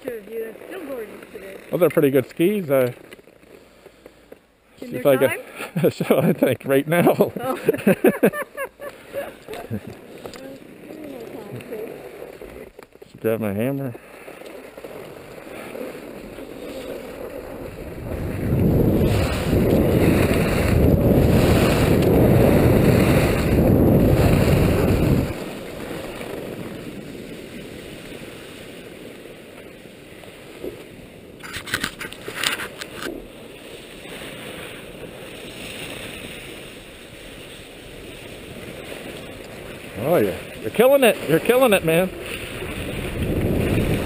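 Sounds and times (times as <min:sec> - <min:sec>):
wind rushing over microphone: 0:15.2 - 0:29.0, 0:31.4 - 0:44.0.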